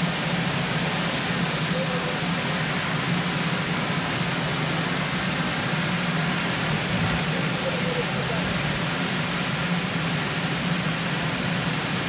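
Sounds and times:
helicopter turbine engines running: 0.0 - 12.0.

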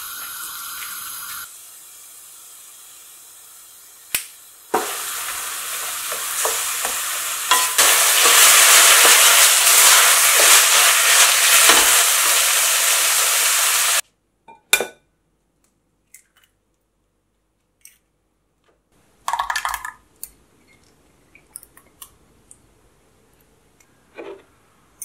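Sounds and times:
meat sizzling in a frying pan: 0.0 - 14.0.

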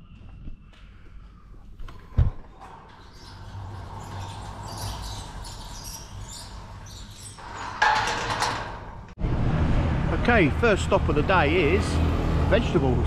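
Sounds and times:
gate clunk: 2.1 - 9.2
metal gate scraping and rattling: 2.5 - 9.2.

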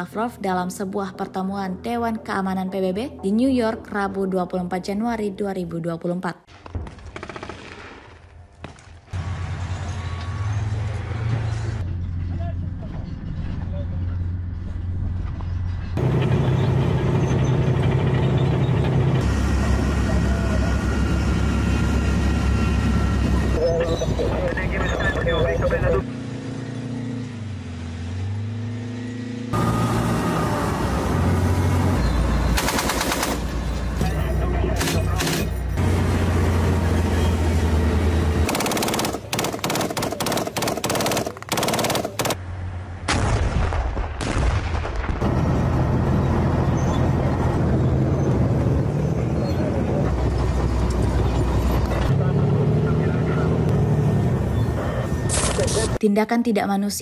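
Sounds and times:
machine-gun fire: 6.5 - 8.2, 32.6 - 33.6, 38.4 - 42.4
heavy vehicle engine running: 9.2 - 39.8, 45.2 - 56.0.

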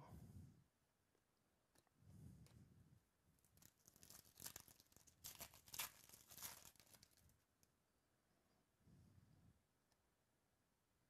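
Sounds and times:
foil wrapper tearing and crinkling: 3.5 - 7.3.

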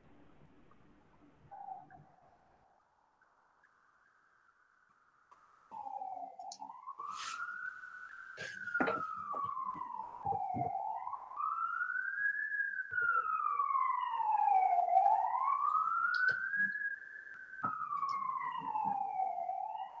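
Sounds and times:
emergency siren wailing: 5.7 - 20.0.

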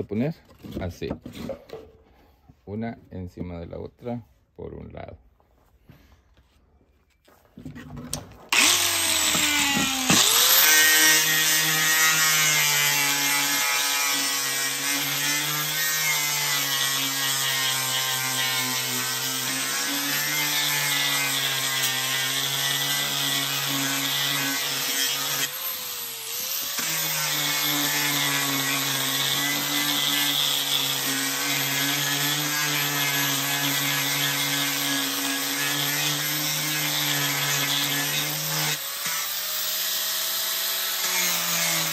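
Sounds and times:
angle grinder sanding wood: 8.5 - 41.9.

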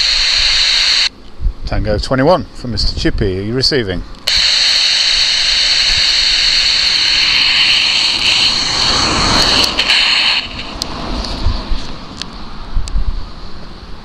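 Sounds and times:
radio static hiss: 0.0 - 1.1, 4.3 - 11.4.

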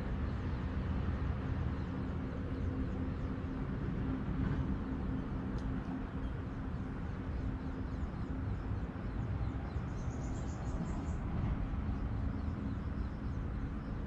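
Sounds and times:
wind rumbling on microphone: 0.0 - 14.0
small bird singing: 6.2 - 14.0.

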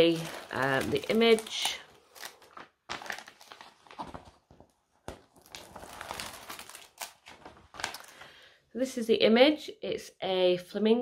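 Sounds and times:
paper rustling and crinkling: 0.0 - 8.3.

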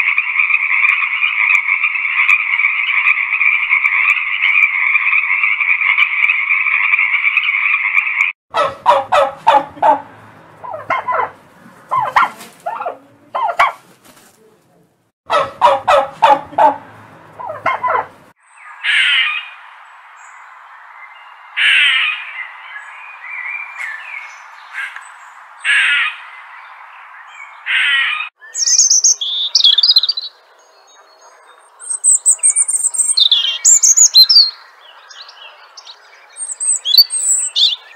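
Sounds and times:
squirrel calls: 0.0 - 10.0, 10.6 - 13.8, 17.4 - 18.1, 18.8 - 19.6, 21.6 - 22.4, 25.6 - 26.2, 27.6 - 30.3, 31.2 - 37.9
frog croaking: 0.0 - 11.3
songbird high quick chirps: 28.4 - 30.3, 31.2 - 37.9.

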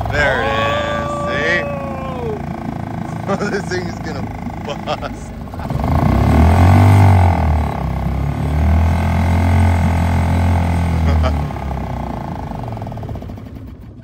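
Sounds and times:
outboard motor droning: 0.0 - 14.0.

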